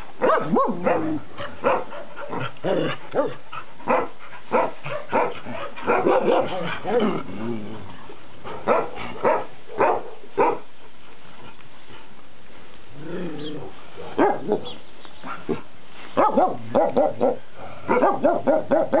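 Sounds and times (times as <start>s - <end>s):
dogs barking: 0.2s - 7.1s, 8.5s - 10.7s, 14.0s - 19.0s.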